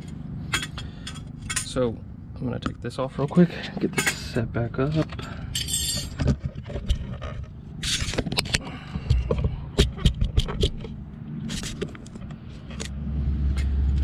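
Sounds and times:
caliper cover scraping: 0:03.6 - 0:13.8.

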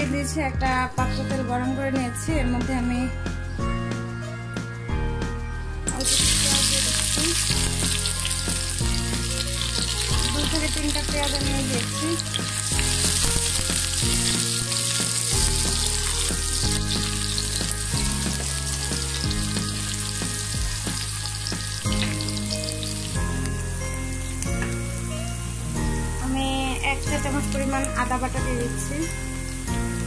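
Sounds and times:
onions sizzling in oil: 0:05.9 - 0:30.0.

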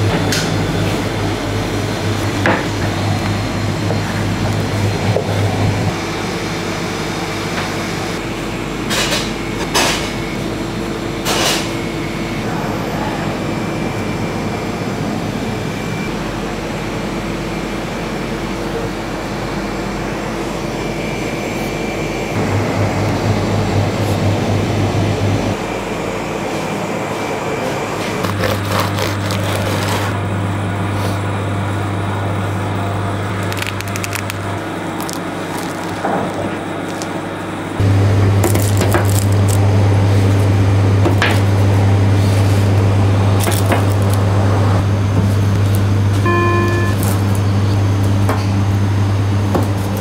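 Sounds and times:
steady machine hum: 0:00.0 - 0:50.0
deep low hum: 0:31.6 - 0:49.5.

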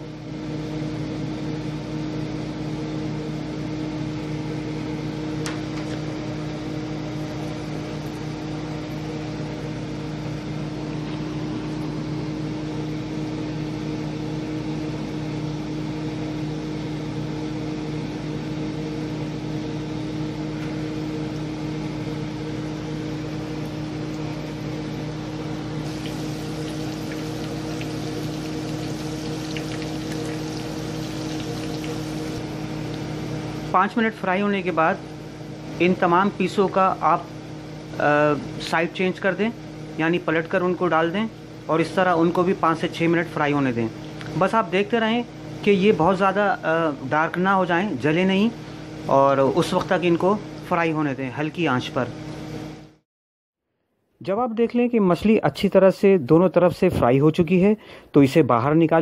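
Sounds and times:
low motor hum: 0:19.8 - 0:33.6
fish frying in hot oil: 0:25.9 - 0:32.4.

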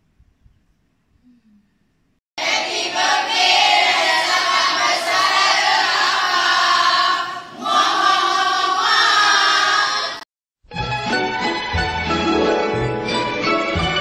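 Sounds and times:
women singing together: 0:02.4 - 0:10.2.

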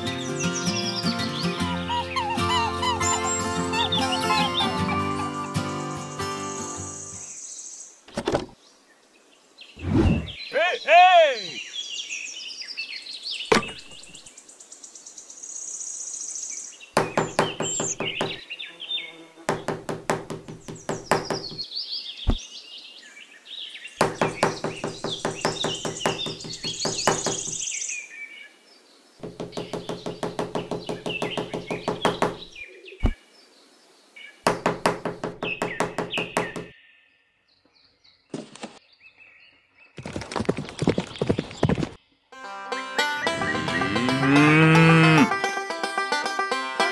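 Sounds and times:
birds chirping: 0:00.0 - 0:40.1, 0:43.0 - 0:46.1
sharp thuds: 0:09.8 - 0:10.4, 0:13.5 - 0:14.1
fast wooden knocking: 0:17.0 - 0:18.4, 0:19.5 - 0:21.6, 0:24.0 - 0:27.6, 0:29.2 - 0:32.5, 0:34.5 - 0:36.7.

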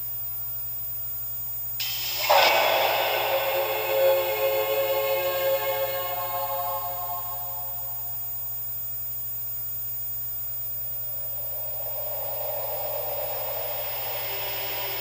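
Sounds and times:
electrical mains hum: 0:00.0 - 0:15.0
tape hiss: 0:00.0 - 0:15.0
wash of noise: 0:01.8 - 0:07.8, 0:11.2 - 0:15.0.

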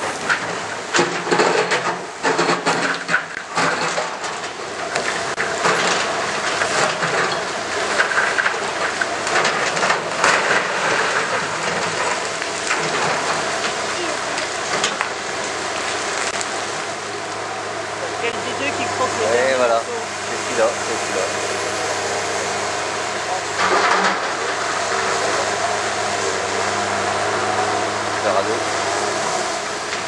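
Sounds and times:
diesel engines running: 0:00.0 - 0:30.0
stone rubble crashing down: 0:00.2 - 0:16.6.

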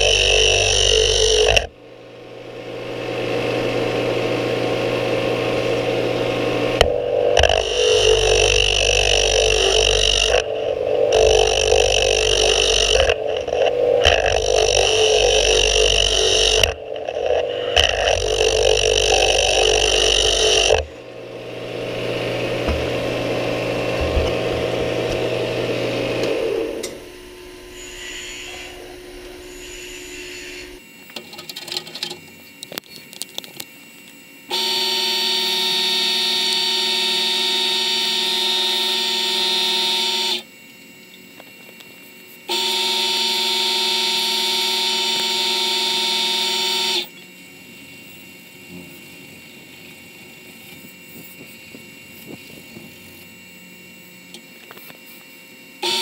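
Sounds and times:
lathe motor humming: 0:00.0 - 0:31.0, 0:34.4 - 0:56.0
tool scraping on spinning wood: 0:06.0 - 0:21.0.

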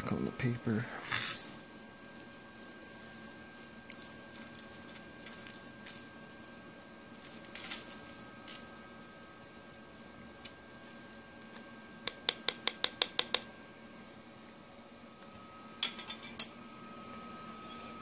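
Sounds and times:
paper rustling: 0:02.9 - 0:06.1.

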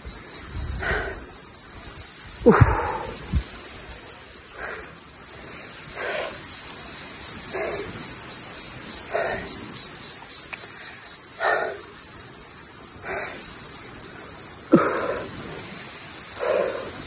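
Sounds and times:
insect chorus: 0:00.0 - 0:17.0
man breathing hard: 0:00.6 - 0:01.5, 0:02.3 - 0:06.7, 0:07.4 - 0:08.0, 0:09.0 - 0:09.8, 0:10.8 - 0:12.0, 0:12.9 - 0:14.0, 0:14.6 - 0:17.0
man groaning: 0:02.4 - 0:03.3, 0:14.7 - 0:15.4.

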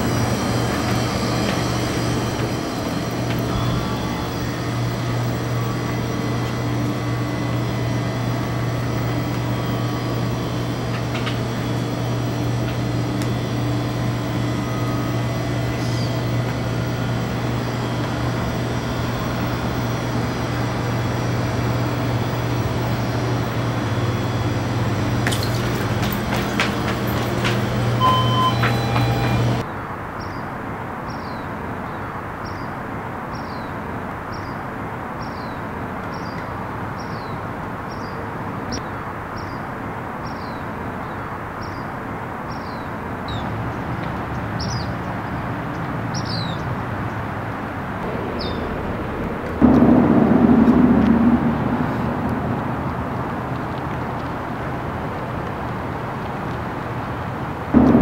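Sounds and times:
low hum and rumble: 0:00.0 - 0:29.6, 0:46.5 - 0:58.0
short high beeps: 0:28.0 - 0:29.5.

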